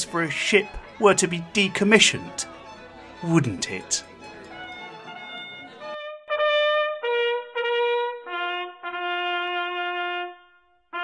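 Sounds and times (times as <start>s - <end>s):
solo trumpet playing: 4.4s - 11.0s.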